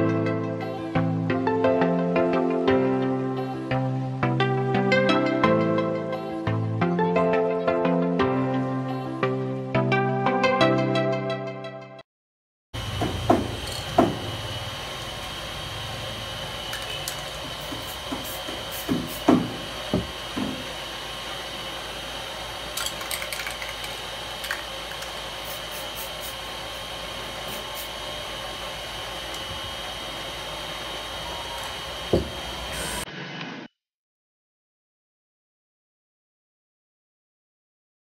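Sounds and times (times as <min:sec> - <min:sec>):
steady background noise: 0:12.8 - 0:33.1
spray can ball rattling: 0:13.6 - 0:13.9, 0:16.6 - 0:19.2, 0:22.7 - 0:26.3
spray cans knocking on table: 0:16.9 - 0:20.6, 0:32.1 - 0:32.4.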